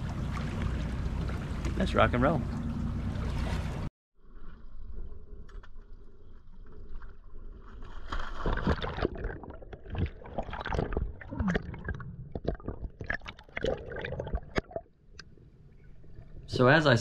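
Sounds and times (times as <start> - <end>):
water splashing: 0.0 - 3.9, 6.6 - 14.9
low steady hum: 0.0 - 8.0
bubbles gurgling underwater: 8.6 - 14.9.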